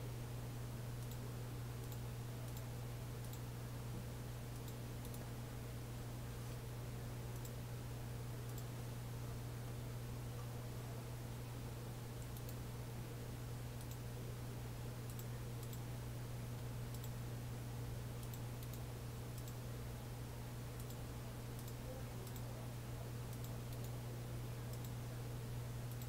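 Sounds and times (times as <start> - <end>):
low electrical hum: 0.0 - 26.0
computer mouse clicks: 1.0 - 1.2, 1.8 - 3.4, 4.6 - 5.3, 7.4 - 7.6, 8.4 - 8.7, 12.2 - 12.6, 13.8 - 14.0, 15.1 - 15.8, 16.6 - 17.2, 18.2 - 19.6, 20.8 - 21.0, 21.6 - 22.5, 23.3 - 24.0, 24.7 - 25.0.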